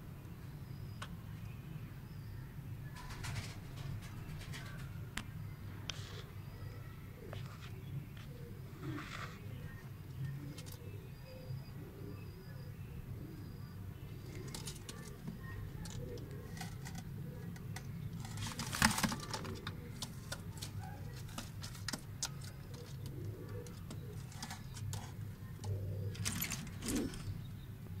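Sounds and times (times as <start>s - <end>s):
pigeons cooing: 6.0s - 27.9s.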